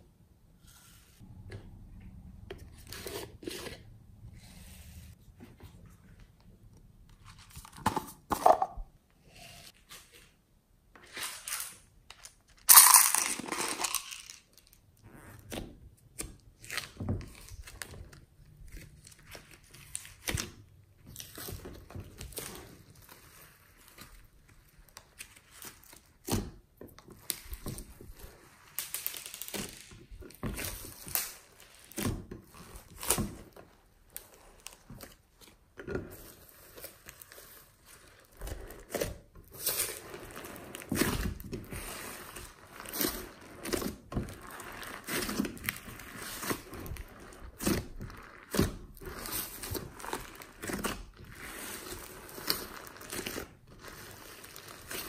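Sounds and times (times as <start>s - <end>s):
slime squelching: 15.2s - 55.0s.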